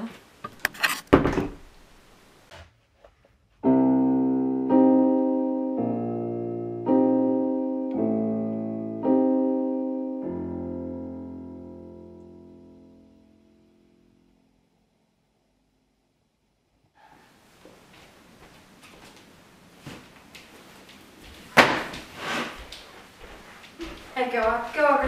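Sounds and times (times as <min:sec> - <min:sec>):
door shutting: 0:00.4 - 0:01.8
piano playing slow chords: 0:03.6 - 0:14.8.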